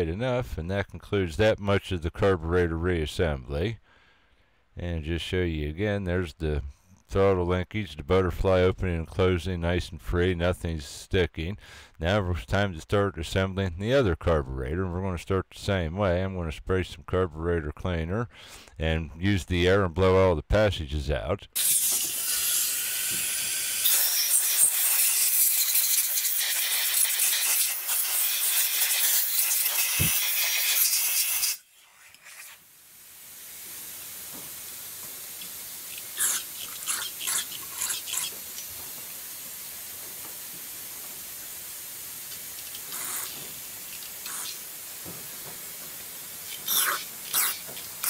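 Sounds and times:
aerosol can spraying: 21.6s - 32.7s, 42.3s - 44.7s, 46.4s - 48.0s
compressed air blow gun hissing: 21.6s - 48.0s.

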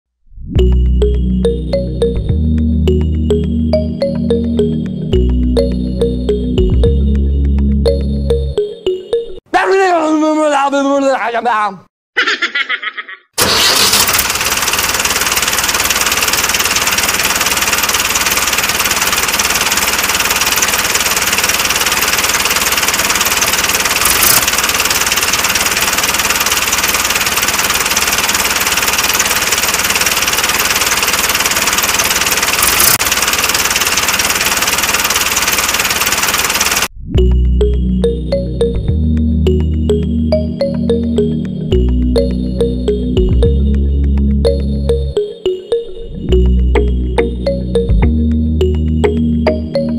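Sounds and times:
tractor engine running: 13.4s - 37.0s
sharp clicks: 15.8s - 29.2s, 29.9s - 36.9s.

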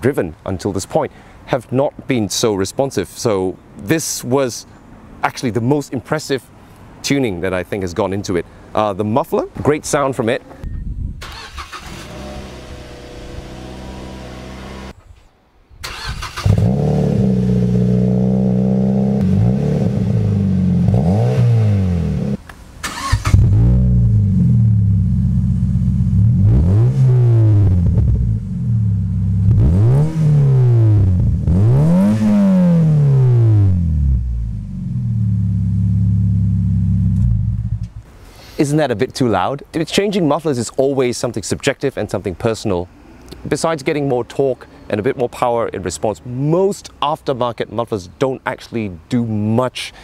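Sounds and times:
engine throttle blips: 15.9s - 38.0s.

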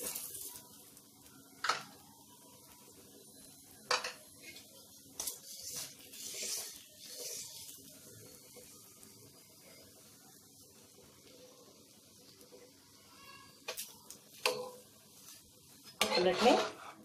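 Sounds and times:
metal utensils clinking on griddle: 3.9s - 4.6s, 13.7s - 14.8s, 15.9s - 17.0s
spatula scraping: 5.2s - 7.7s, 16.0s - 17.0s.

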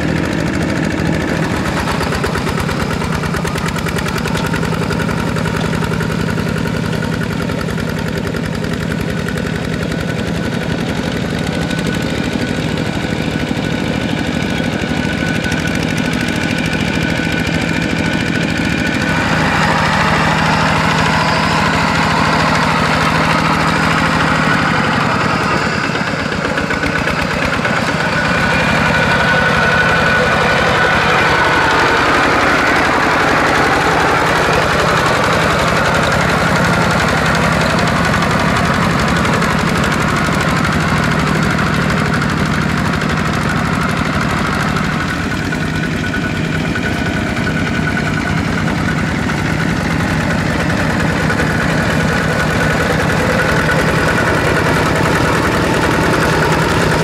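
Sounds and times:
diesel tractor engine under load: 0.0s - 57.0s.

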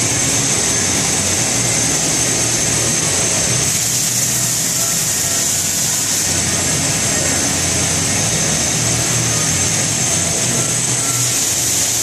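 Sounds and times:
milling machine running: 0.0s - 12.0s.

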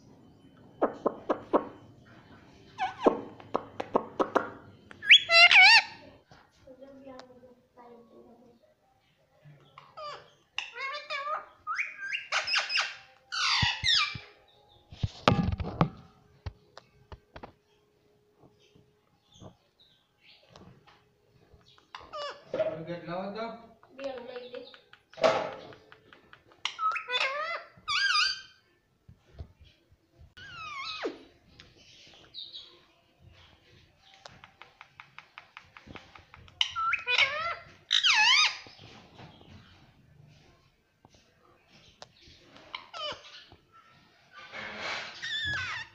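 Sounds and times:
parakeet chattering calls: 9.9s - 14.2s.

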